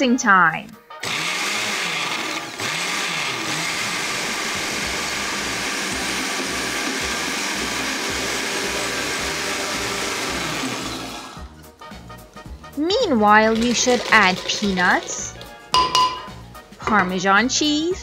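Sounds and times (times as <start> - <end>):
blender motor running: 1.0 - 11.5, 13.6 - 15.5.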